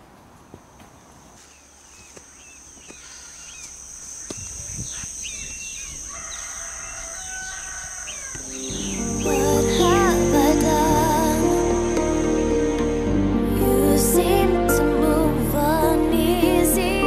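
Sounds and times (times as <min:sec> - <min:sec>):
birds chirping: 0:00.6 - 0:13.2
high-pitched insect buzz: 0:02.4 - 0:13.2
music: 0:08.4 - 0:17.0.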